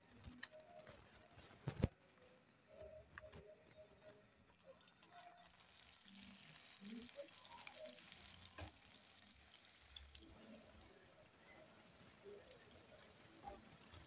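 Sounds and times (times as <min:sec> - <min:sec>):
spring rolls sizzling in oil: 0:04.5 - 0:14.0.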